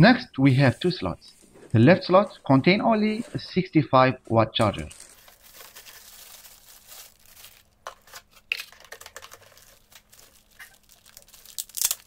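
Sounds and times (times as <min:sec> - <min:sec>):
plastic wrapping crinkling: 0:04.8 - 0:12.0.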